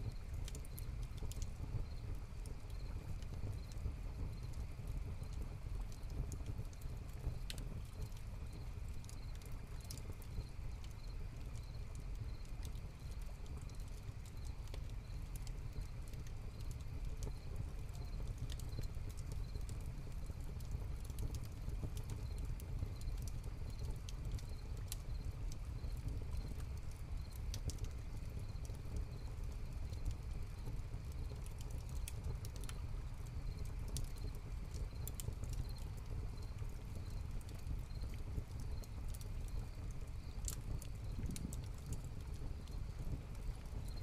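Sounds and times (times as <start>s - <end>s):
fire crackling and popping: 0.0s - 44.0s
crickets chirping: 9.2s - 12.4s, 37.9s - 38.1s, 42.6s - 44.0s.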